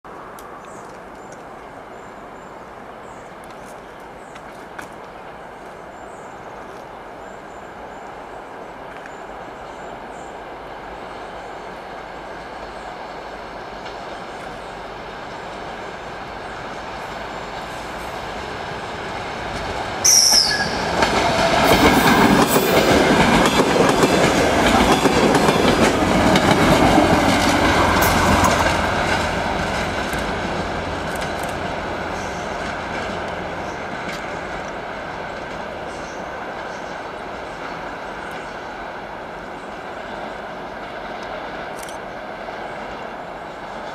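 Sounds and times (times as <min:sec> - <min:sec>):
diesel train engine: 0:00.2 - 0:43.9
train wheels clattering over rails: 0:17.5 - 0:38.5.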